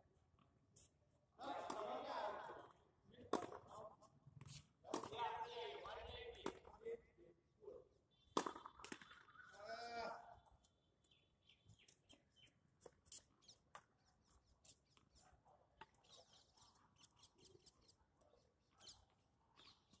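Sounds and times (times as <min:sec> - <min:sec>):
birds chirping: 0:08.1 - 0:15.1, 0:15.9 - 0:20.0.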